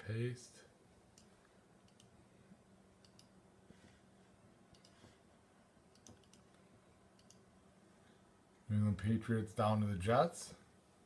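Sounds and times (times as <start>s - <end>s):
faint computer mouse clicks: 1.1s - 2.2s, 3.0s - 3.4s, 4.7s - 5.2s, 5.9s - 6.6s, 7.2s - 7.4s.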